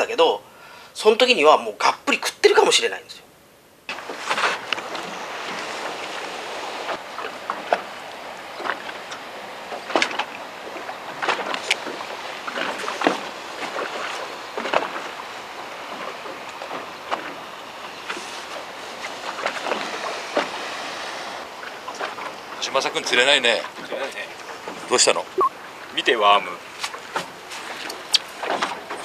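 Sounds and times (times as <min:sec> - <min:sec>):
wind: 0:00.0 - 0:29.0
water wash: 0:03.9 - 0:29.0
waves slapping against boat hull: 0:03.9 - 0:29.0.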